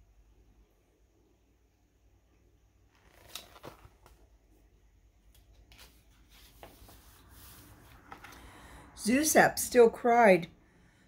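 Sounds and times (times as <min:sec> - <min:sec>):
soft handling rustles: 0:05.3 - 0:08.4.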